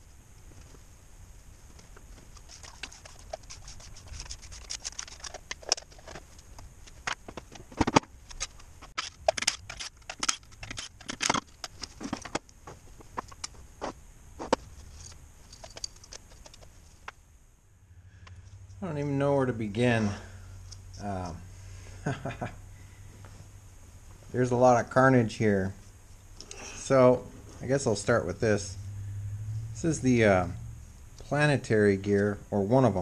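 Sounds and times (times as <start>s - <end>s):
metal parts clinking and knocking: 4.0s - 7.2s, 7.8s - 12.4s, 14.8s - 16.7s.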